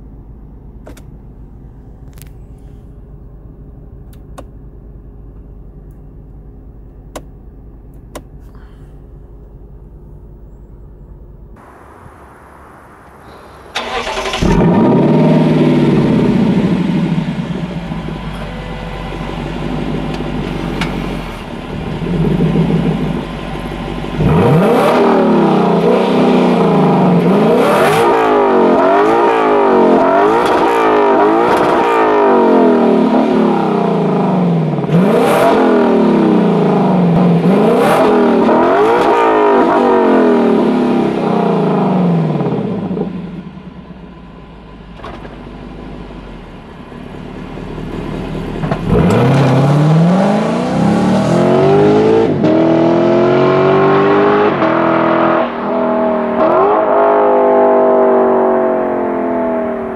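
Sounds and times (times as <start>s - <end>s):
car engine revving: 11.6s - 44.0s, 45.0s - 59.9s
car accelerating hard: 13.3s - 17.5s, 24.2s - 43.2s, 48.6s - 59.9s.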